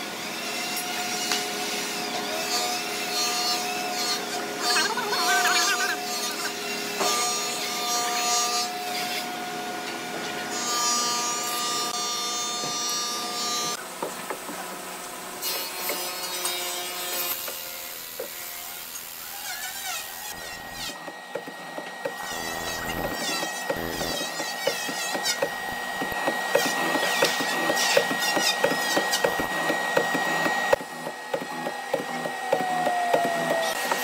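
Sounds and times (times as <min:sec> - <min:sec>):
mortising machine boring wood: 0:00.8 - 0:08.8, 0:15.6 - 0:34.0
high machine whine: 0:20.1 - 0:34.0.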